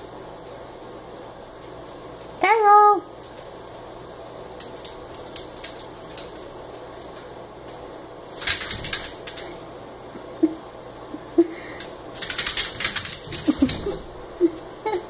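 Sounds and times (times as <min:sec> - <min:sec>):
dog claws clicking on tile floor: 0:03.1 - 0:09.7, 0:11.7 - 0:14.3.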